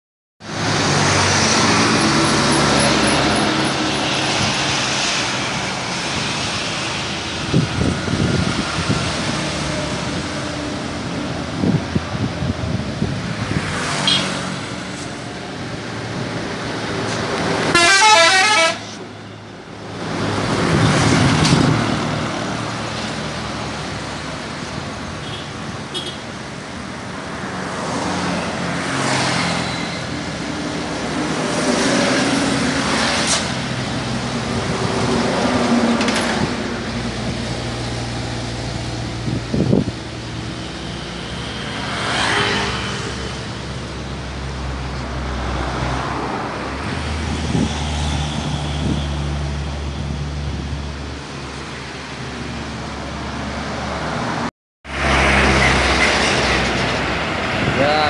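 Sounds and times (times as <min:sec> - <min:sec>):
highway traffic passing: 0:00.4 - 0:58.0
warbling vehicle horn: 0:17.7 - 0:18.8.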